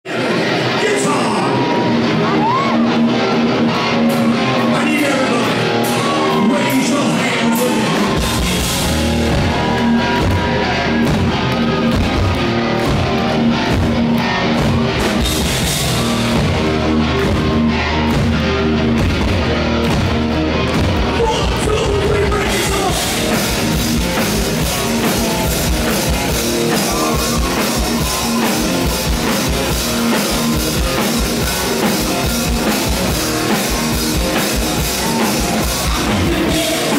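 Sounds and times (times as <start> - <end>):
live rock band playing: 0.1 - 36.9
lead vocal singing: 35.0 - 36.9.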